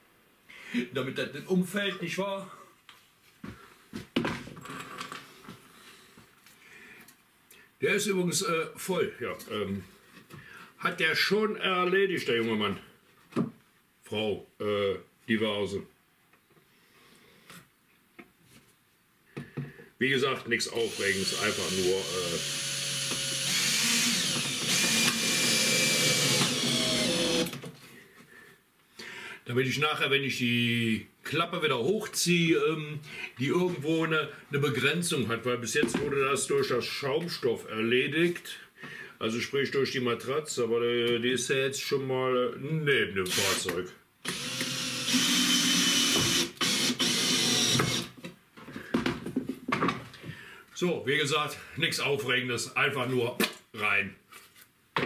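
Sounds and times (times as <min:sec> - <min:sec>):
drill motor whining: 0:20.8 - 0:27.6, 0:44.2 - 0:48.1.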